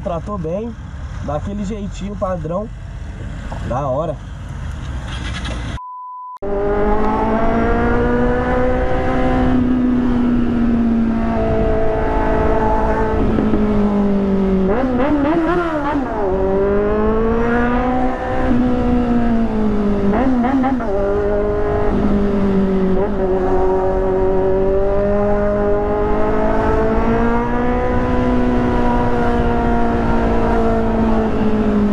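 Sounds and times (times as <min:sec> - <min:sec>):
motorcycle engine revving: 0:06.4 - 0:31.9.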